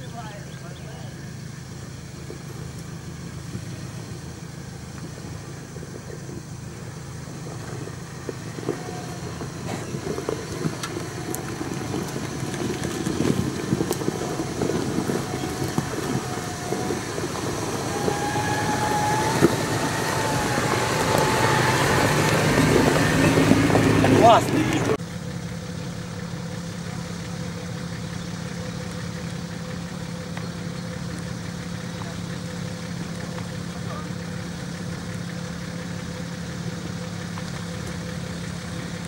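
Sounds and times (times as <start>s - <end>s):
engine running at low revs: 0.0s - 39.0s
stones crunching under tyres: 2.1s - 25.0s, 34.4s - 39.0s.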